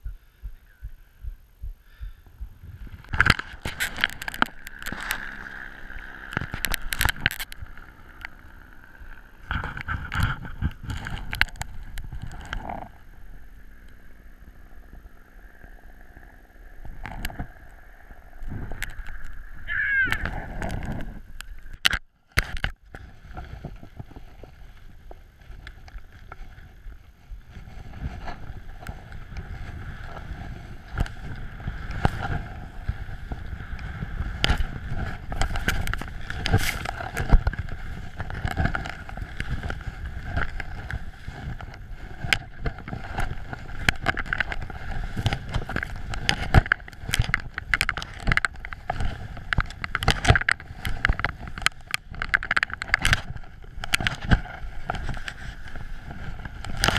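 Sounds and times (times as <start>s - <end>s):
wind rumbling on microphone: 0.0s - 56.9s
knocks and clatter from skis: 2.9s - 8.4s, 9.4s - 13.0s, 18.5s - 56.9s
skis running through powder snow: 23.0s - 52.2s, 53.3s - 56.8s.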